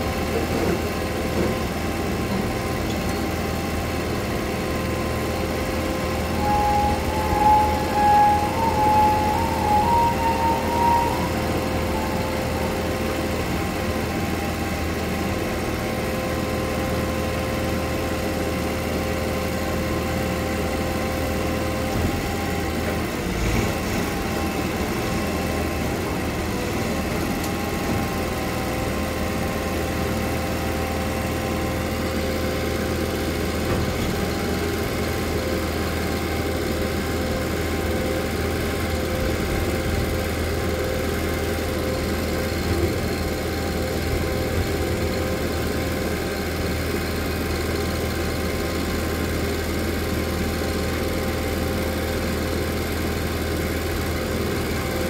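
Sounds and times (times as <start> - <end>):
hydraulic whine: 0.0 - 52.5
truck engine idling: 0.0 - 55.0.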